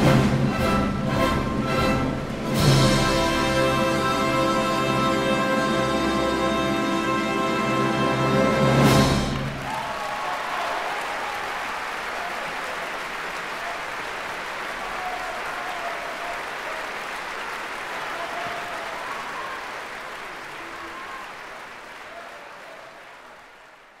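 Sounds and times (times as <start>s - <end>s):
audience applauding: 8.8s - 24.0s.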